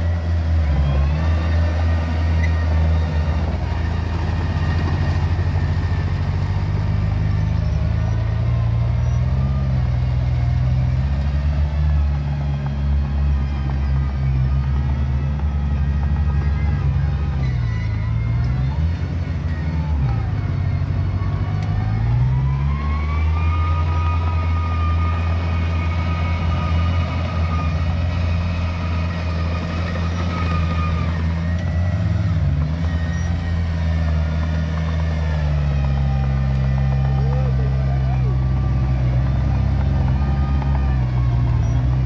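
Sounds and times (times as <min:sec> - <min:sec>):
heavy diesel engine running hard: 0:00.0 - 0:42.0.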